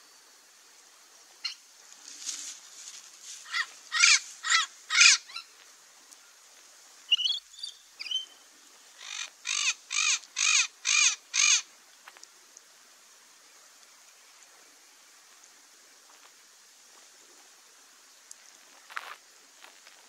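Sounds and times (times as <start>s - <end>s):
parrot harsh calls: 3.4s - 5.5s, 9.0s - 11.7s.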